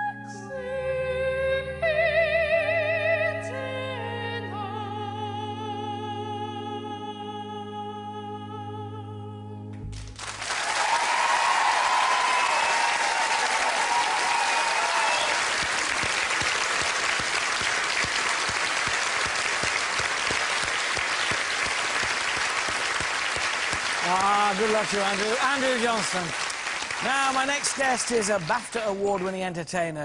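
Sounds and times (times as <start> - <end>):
audience applause: 10.0 - 29.4
audience cheering: 10.2 - 29.3.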